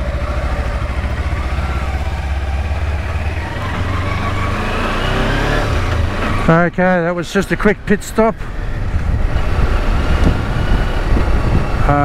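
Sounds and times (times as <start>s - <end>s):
motorcycle engine running: 0.0s - 7.4s
wind rumble on microphone: 8.4s - 12.0s.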